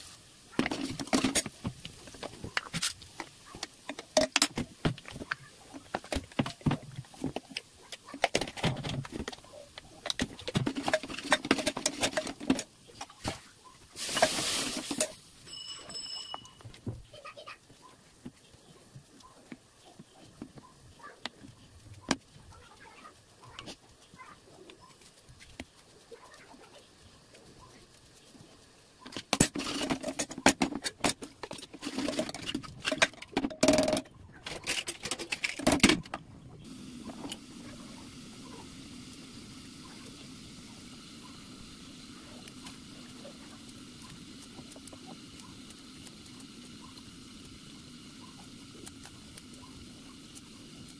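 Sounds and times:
hiss: 0:00.0 - 0:07.6, 0:09.1 - 0:15.4, 0:36.6 - 0:50.9
metal ladle scraping a pot: 0:29.3 - 0:33.3.

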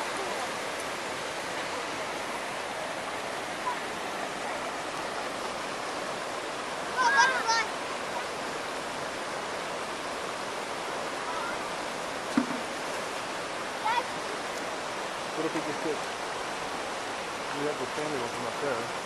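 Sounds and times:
creek rushing over boulders: 0:00.0 - 0:19.0
child calling: 0:06.9 - 0:07.8, 0:13.8 - 0:14.2.

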